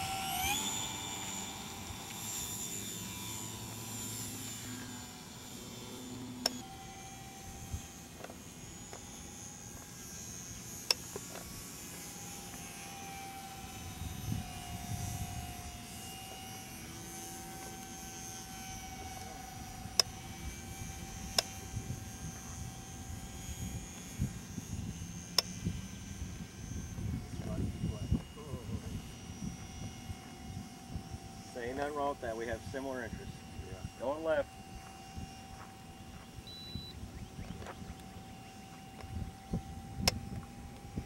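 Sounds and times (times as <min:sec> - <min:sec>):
model airplane motors droning: 0:00.0 - 0:41.0.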